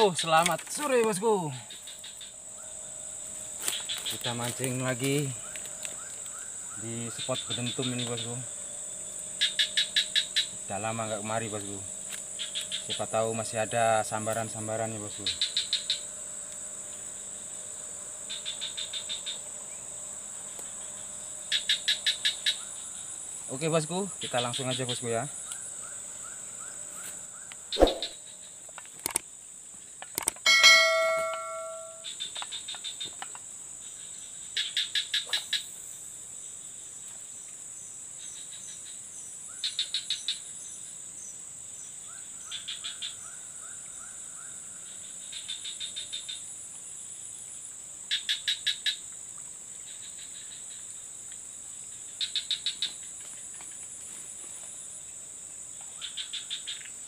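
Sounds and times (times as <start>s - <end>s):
insects droning: 0.0s - 57.0s
rapid even chirps: 27.7s - 28.3s
sharp click: 29.0s - 29.2s, 30.0s - 30.4s
brief ringing tone: 30.5s - 32.1s.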